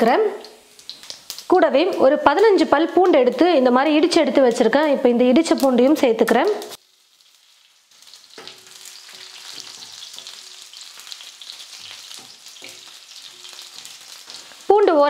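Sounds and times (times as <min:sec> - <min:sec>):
garlic sizzling in hot oil: 0:00.0 - 0:15.0.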